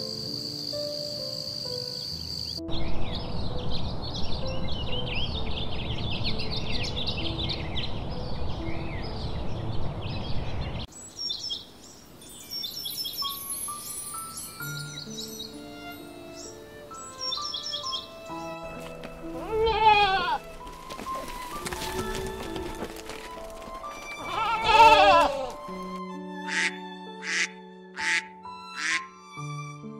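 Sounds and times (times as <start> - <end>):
insect trill: 0.0 - 2.6, 11.0 - 18.6
slow background music: 0.0 - 10.0, 12.2 - 29.9
small birds chirping: 0.0 - 19.2.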